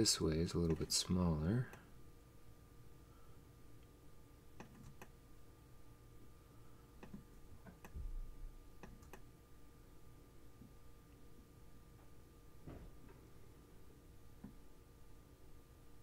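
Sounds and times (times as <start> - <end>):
faint steady hum: 0.0 - 16.0
faint computer mouse clicks: 4.6 - 5.1, 7.0 - 8.0, 8.8 - 9.3.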